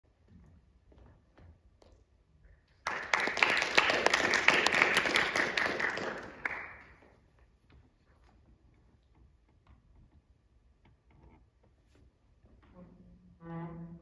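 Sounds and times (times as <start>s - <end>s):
audience applauding: 2.8s - 7.1s.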